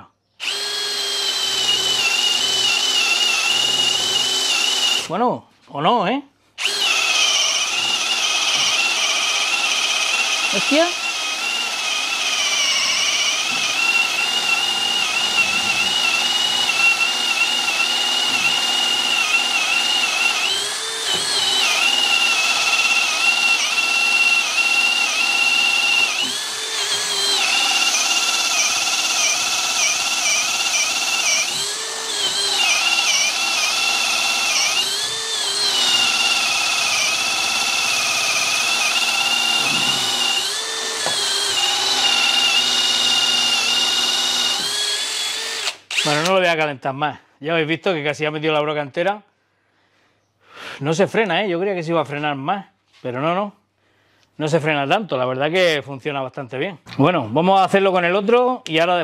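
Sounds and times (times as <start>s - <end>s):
cordless drill boring into wood: 0.4s - 5.2s, 6.6s - 46.4s.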